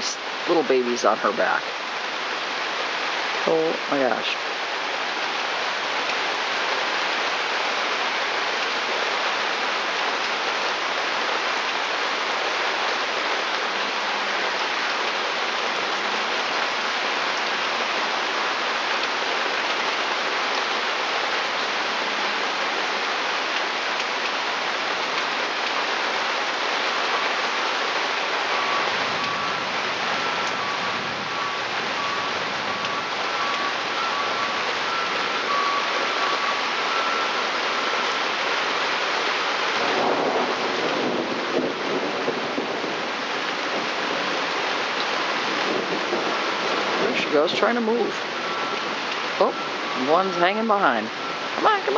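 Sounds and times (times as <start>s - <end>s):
heavy rain on wooden deck: 0.0s - 51.9s
faint two-tone electronic beep: 30.2s - 37.4s.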